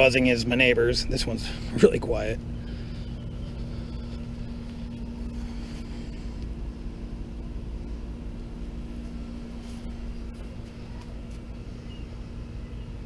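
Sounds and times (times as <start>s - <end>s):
air conditioner buzzing hum: 0.0s - 13.0s.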